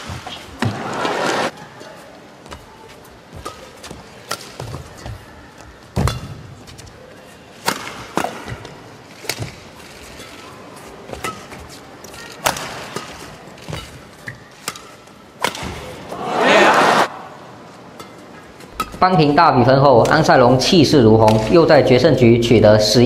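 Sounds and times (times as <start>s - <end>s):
arena crowd noise: 0.0s - 13.7s, 15.2s - 23.0s
rackets hitting shuttlecock: 2.5s - 5.2s, 6.0s - 10.5s, 11.1s - 16.0s, 17.9s - 19.3s, 20.0s - 21.7s.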